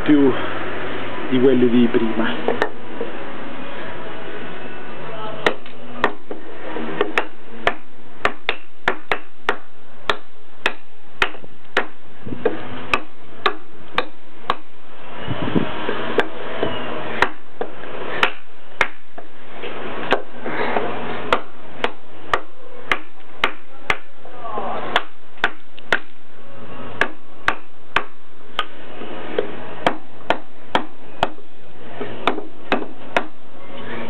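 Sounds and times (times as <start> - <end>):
wood splitting: 7.0 - 14.7, 15.8 - 19.3, 20.0 - 24.1, 24.9 - 26.2, 27.0 - 31.4, 32.0 - 33.4.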